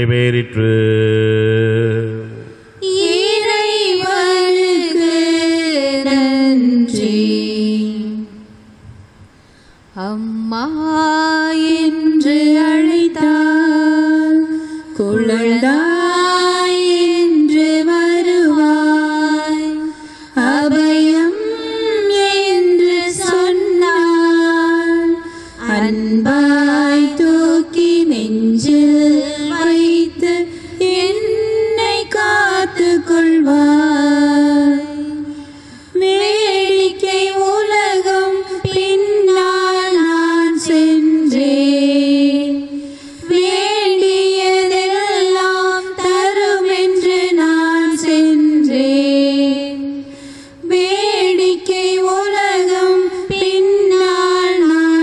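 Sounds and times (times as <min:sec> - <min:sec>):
woman singing a hymn: 0:02.8 - 0:08.6, 0:09.9 - 0:55.0
singer breathing: 0:09.3 - 0:09.9, 0:14.5 - 0:15.0, 0:19.9 - 0:20.4, 0:25.2 - 0:25.6, 0:30.4 - 0:30.8, 0:35.2 - 0:36.0, 0:42.7 - 0:43.3, 0:50.0 - 0:50.6.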